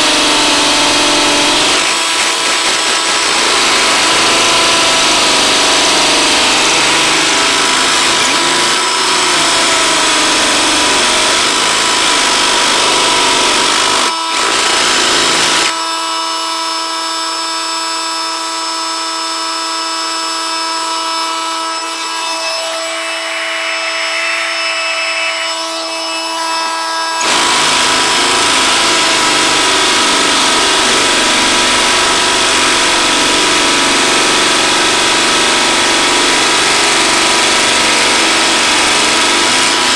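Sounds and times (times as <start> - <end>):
drill spinning freely: 0.0 - 39.9
hammer drill drilling into stone: 0.0 - 39.9.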